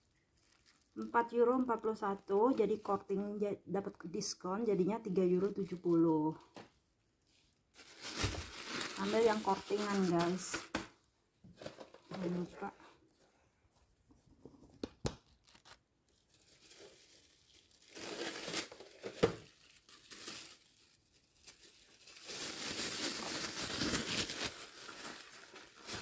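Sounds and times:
plastic bag crinkling: 0.0 - 3.2, 4.7 - 6.6, 7.2 - 10.8, 15.3 - 26.0.

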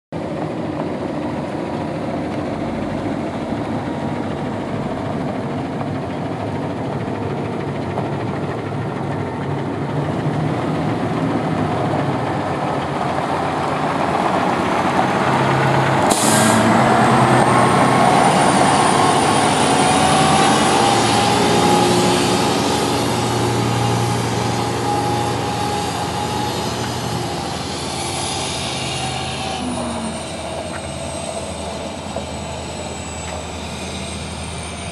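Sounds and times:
truck diesel engine: 0.2 - 34.9
high whine rising in pitch: 11.0 - 34.9
air hiss: 16.1 - 16.7.

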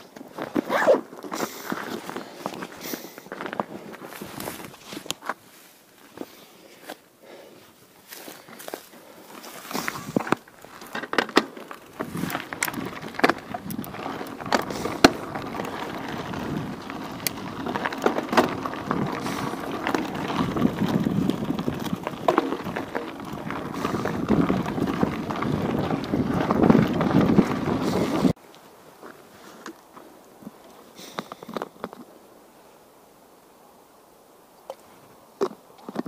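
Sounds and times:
rumbling over uneven path: 0.0 - 28.4.

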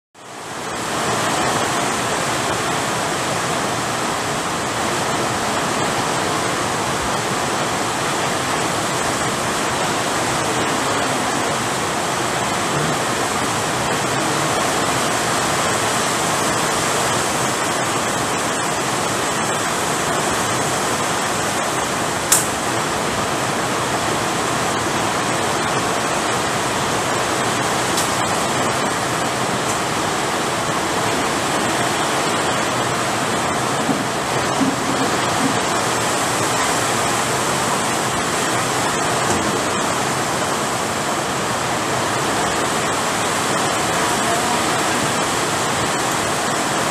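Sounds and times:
heavy rain falling: 0.2 - 46.9
sharp click: 22.3 - 22.6.

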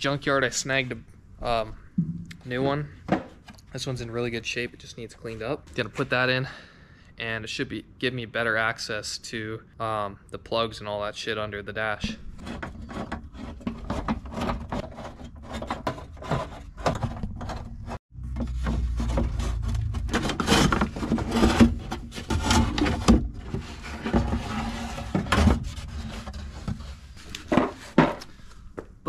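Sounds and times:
knocks and scrapes on dashboard: 12.0 - 28.2.

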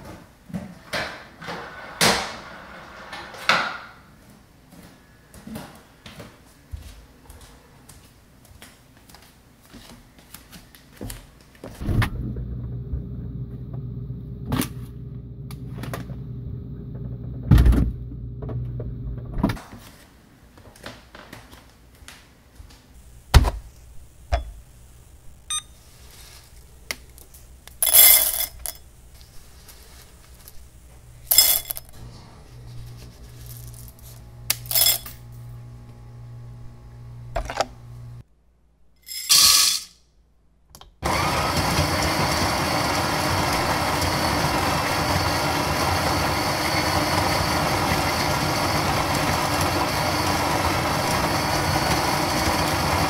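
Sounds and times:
low hum: 11.8 - 19.6, 27.6 - 38.2
faint beeps: 25.5 - 25.8
coffee beans rattling into a bowl: 27.8 - 28.8, 31.3 - 31.9, 34.5 - 35.2, 39.1 - 39.9.

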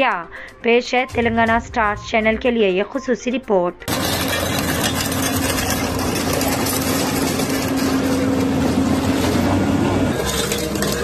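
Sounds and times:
excavator diesel engine running: 3.9 - 11.0.

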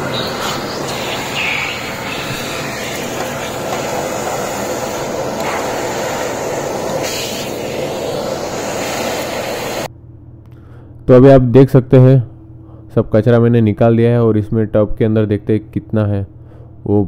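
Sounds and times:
vacuum cleaner running: 0.0 - 9.9
vacuum nozzle sucking grit: 0.0 - 9.9.

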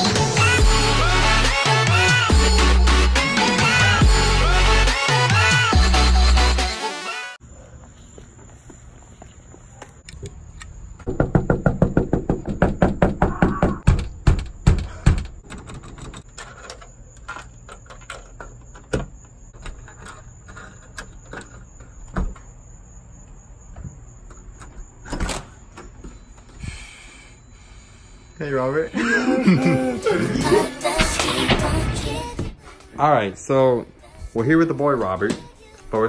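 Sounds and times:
knocking on a door: 11.0 - 15.3
door opening thud: 11.1 - 16.3, 24.6 - 26.0.

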